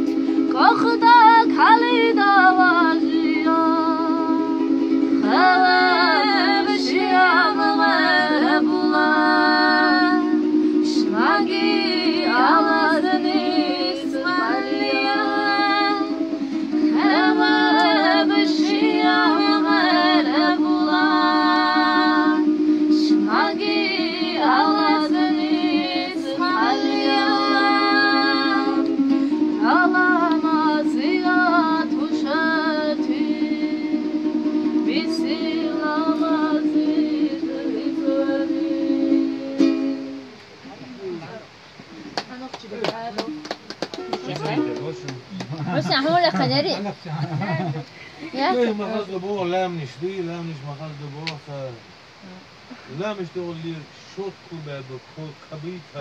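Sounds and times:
woman singing: 0:00.0 - 0:40.2, 0:44.0 - 0:44.7
strummed long-necked string instrument: 0:00.0 - 0:41.4, 0:43.2 - 0:46.6.

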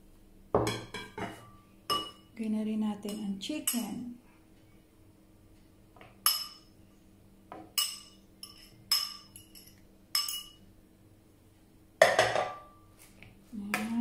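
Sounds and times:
bowl clattering on plates: 0:00.6 - 0:02.3, 0:12.0 - 0:12.8
metal utensil clinking on ceramic bowl: 0:00.8 - 0:02.3, 0:03.0 - 0:04.1, 0:06.2 - 0:06.7, 0:07.7 - 0:10.6.

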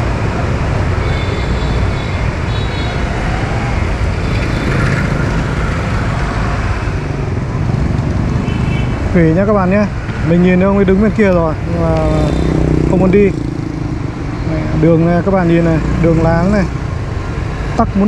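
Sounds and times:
motorbikes and scooters running: 0:00.0 - 0:18.0.

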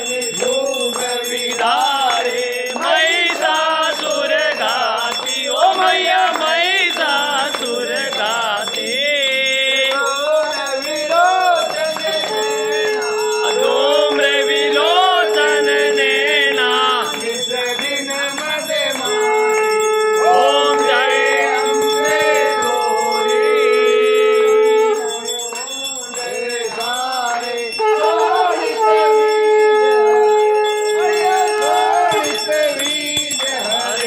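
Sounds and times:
bells ringing: 0:00.0 - 0:34.0
voices singing: 0:00.0 - 0:34.0
steady held note: 0:12.2 - 0:17.2.

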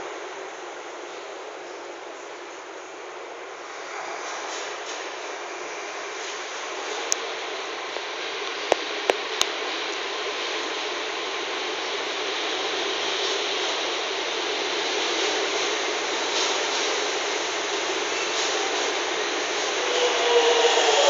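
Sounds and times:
train motors and wheels rushing: 0:00.0 - 0:21.0.

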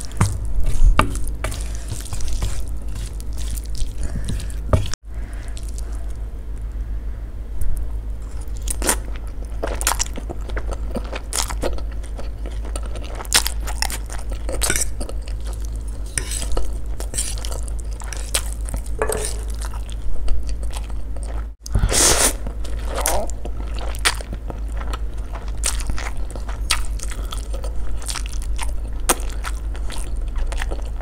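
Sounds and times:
chewing and wet mouth sounds: 0:00.0 - 0:06.2, 0:08.2 - 0:31.0.

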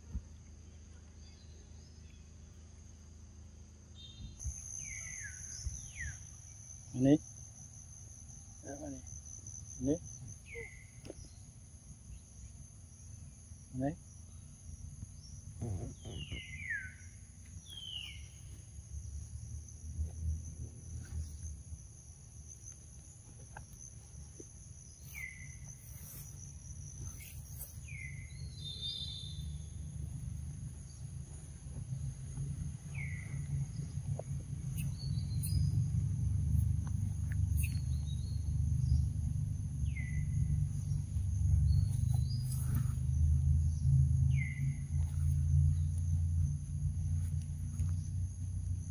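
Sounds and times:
insect drone: 0:00.0 - 0:48.9
low rumble: 0:27.8 - 0:48.9.

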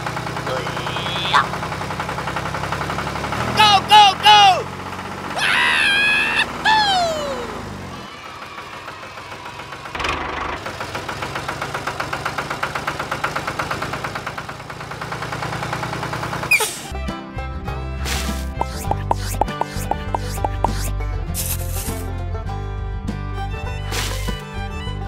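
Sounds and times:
tractor engine chugging: 0:00.0 - 0:05.3, 0:07.4 - 0:16.8, 0:18.5 - 0:22.0
high squeaky cries: 0:05.4 - 0:07.4.

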